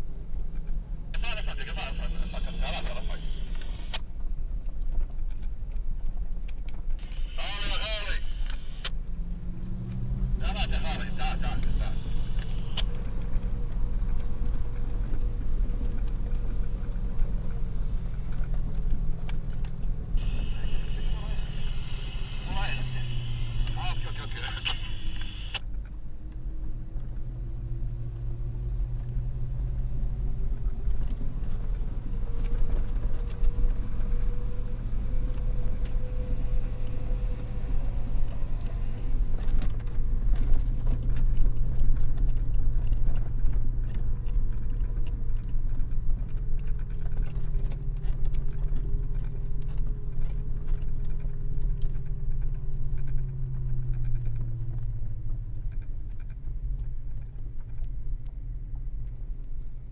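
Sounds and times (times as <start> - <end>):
car engine and road drone: 0.0 - 59.9
light rattles and clicks: 4.0 - 7.1, 10.8 - 20.4, 25.6 - 59.9.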